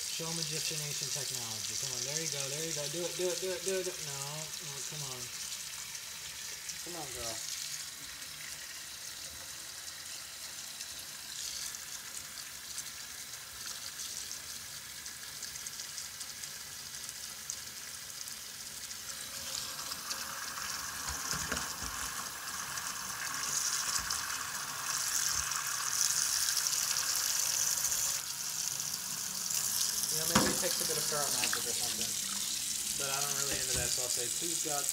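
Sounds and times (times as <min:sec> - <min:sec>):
tap water running into sink: 0:00.0 - 0:34.9
water splashing against steel pot: 0:29.6 - 0:32.7.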